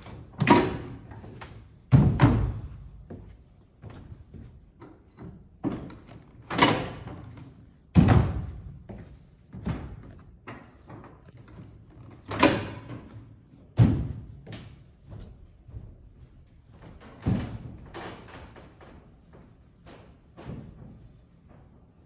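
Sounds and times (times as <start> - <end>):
footsteps on risers: 7.3 - 11.9, 13.0 - 17.2.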